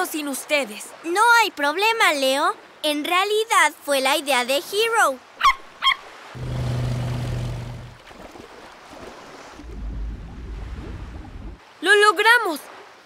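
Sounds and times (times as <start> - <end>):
water and waves: 0.0 - 13.0
motor engine running: 6.4 - 8.0.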